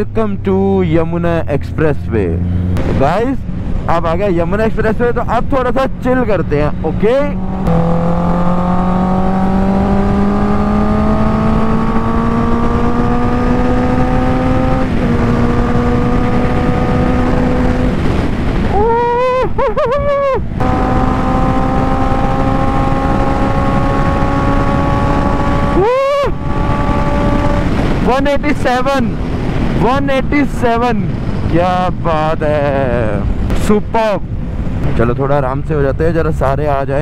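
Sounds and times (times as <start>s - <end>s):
wind rush on microphone: 2.6s - 37.0s
motorcycle engine accelerating: 6.7s - 18.8s, 20.4s - 28.2s.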